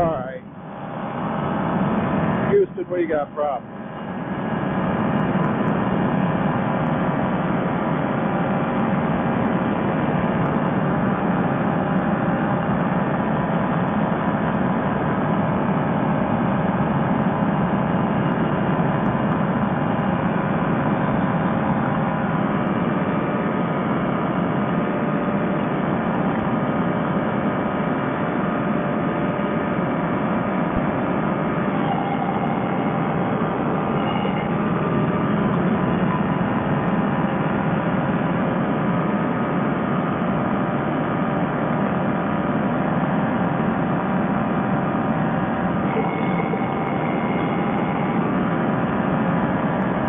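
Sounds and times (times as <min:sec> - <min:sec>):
paramotor engine droning: 0:00.0 - 0:50.0.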